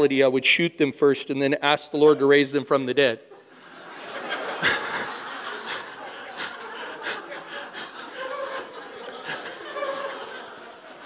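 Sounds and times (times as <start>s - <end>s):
congregation laughing: 3.3s - 11.0s.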